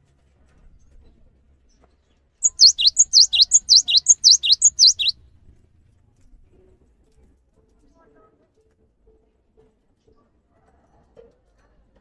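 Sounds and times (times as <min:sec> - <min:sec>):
bird singing high notes: 0:02.4 - 0:05.1.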